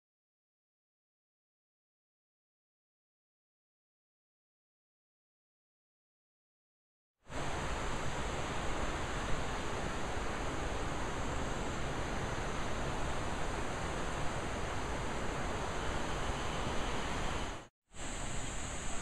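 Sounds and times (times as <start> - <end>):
river water rushing: 7.3 - 19.0.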